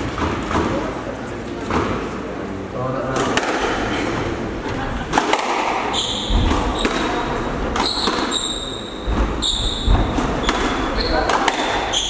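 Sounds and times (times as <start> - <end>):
squash ball hitting rackets and walls: 0.0 - 1.0, 1.6 - 2.2, 3.1 - 3.9, 5.1 - 12.0
shoes squeaking on wooden floor: 5.9 - 12.0.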